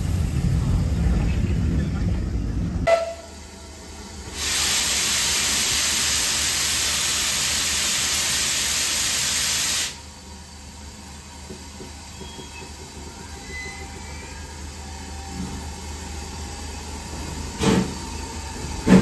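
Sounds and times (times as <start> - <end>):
steam locomotive venting steam: 4.2 - 10.1.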